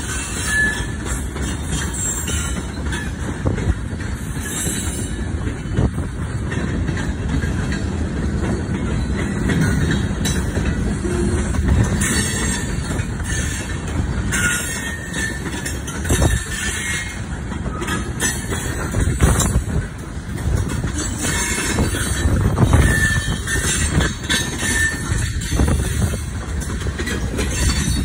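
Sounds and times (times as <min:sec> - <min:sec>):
wheel squeals: 0:00.0 - 0:03.3, 0:11.0 - 0:19.6, 0:20.8 - 0:28.0
freight train rumble: 0:00.0 - 0:28.0
wheels clattering over rails: 0:00.0 - 0:28.0.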